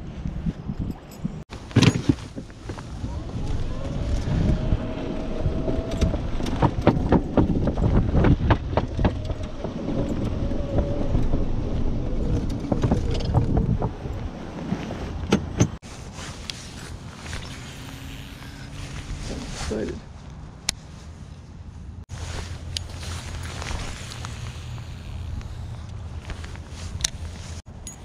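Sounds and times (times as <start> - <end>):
cart body knocking and rattling: 1.6 - 3.2, 5.9 - 11.5
golf cart motor whine: 17.3 - 19.1, 23.4 - 26.1.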